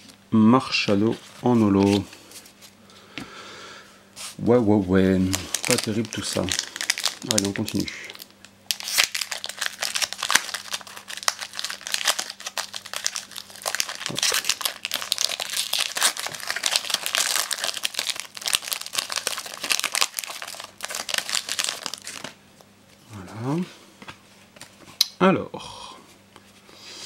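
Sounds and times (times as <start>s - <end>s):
foil wrapper crinkling and tearing: 5.2s - 22.4s.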